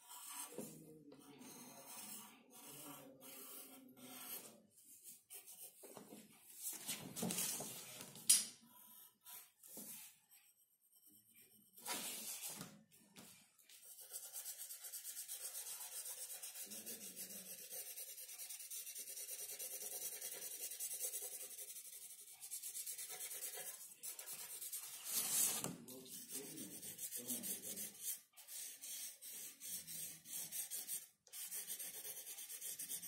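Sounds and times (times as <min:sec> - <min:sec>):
pencil scratching on paper: 0:00.0 - 0:07.9, 0:08.7 - 0:12.7, 0:13.7 - 0:33.0.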